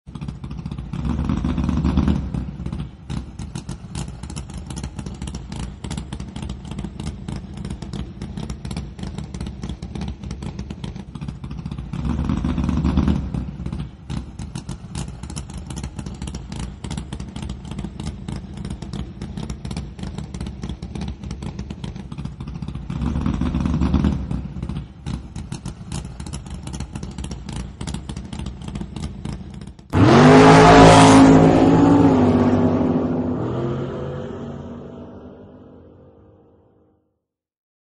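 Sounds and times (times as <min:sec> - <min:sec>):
engine idling with choppy beat: 0:00.1 - 0:30.0
engine revving: 0:00.1 - 0:36.8.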